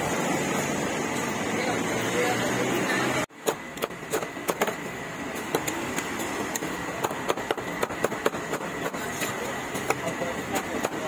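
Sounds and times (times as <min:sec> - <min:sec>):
steady background noise: 0:00.0 - 0:11.0
sharp clicks and knocks: 0:05.4 - 0:11.0.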